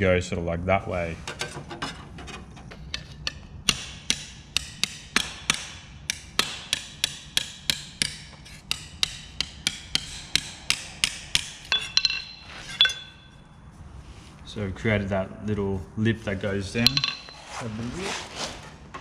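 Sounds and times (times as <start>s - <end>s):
hammer striking sheet steel: 3.2s - 13.4s, 16.8s - 17.6s.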